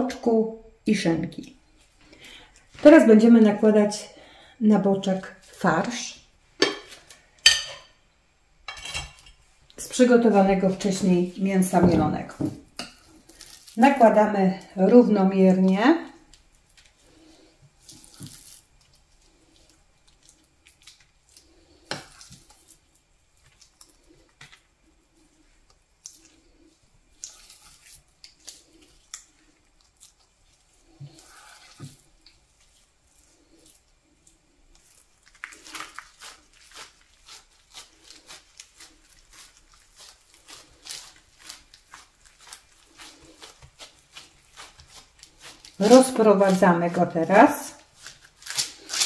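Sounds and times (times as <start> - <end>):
spoon scooping and scraping: 6.6 - 7.9, 12.4 - 14.0, 16.3 - 49.0
hands pressing minced meat: 16.3 - 49.0.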